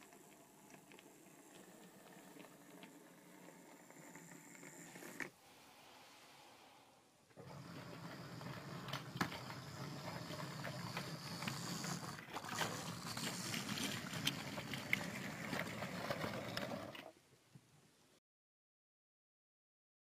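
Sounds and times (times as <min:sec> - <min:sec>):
model train motor humming: 0:00.0 - 0:05.3, 0:07.4 - 0:17.1
wheels clicking over track: 0:00.0 - 0:05.3, 0:07.4 - 0:17.1.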